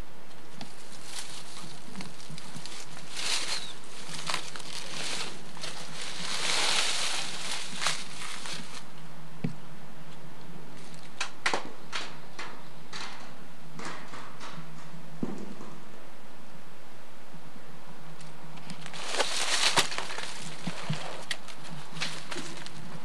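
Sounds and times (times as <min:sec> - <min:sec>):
steady low hum: 0:00.0 - 0:23.0
leaves and twigs rustling: 0:00.2 - 0:11.4, 0:18.2 - 0:23.0.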